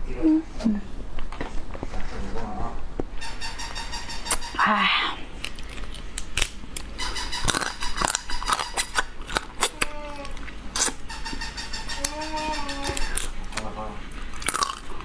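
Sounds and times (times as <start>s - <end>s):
wet mouth sounds: 5.1s - 11.0s
crab shell cracking: 5.4s - 11.0s.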